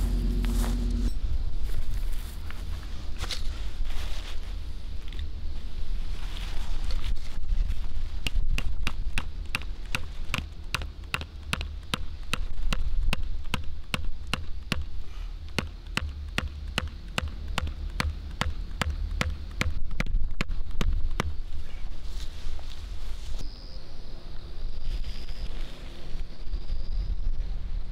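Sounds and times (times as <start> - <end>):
steady low rumble: 0.0 - 22.2
hammer striking metal stake: 8.2 - 21.4.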